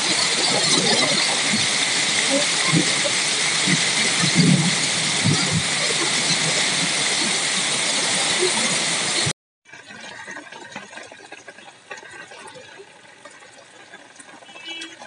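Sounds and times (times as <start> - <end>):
hail and heavy rain on paving: 0.0 - 9.3.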